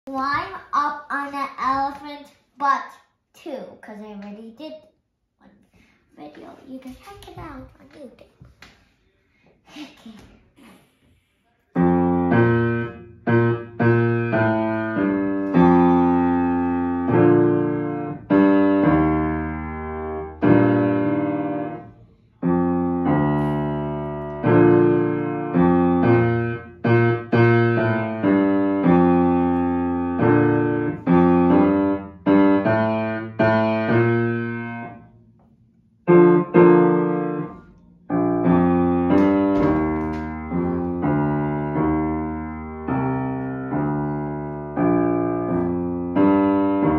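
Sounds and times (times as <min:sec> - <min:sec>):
upright piano played simply: 0:11.8 - 0:35.1, 0:36.1 - 0:46.9.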